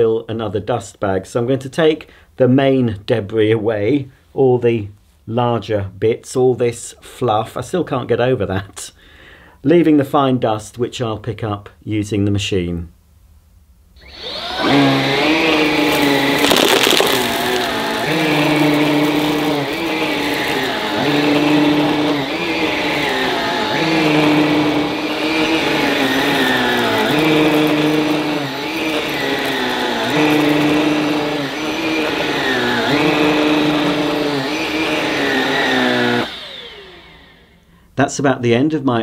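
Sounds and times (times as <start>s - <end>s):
vacuum cleaner on carpet: 14.0s - 37.6s
vacuum motor winding down: 14.0s - 37.7s.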